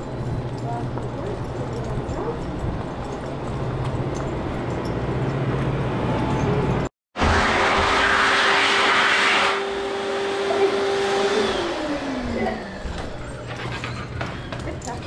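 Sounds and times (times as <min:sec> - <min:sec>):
electric hand dryer blowing: 0:07.2 - 0:13.2.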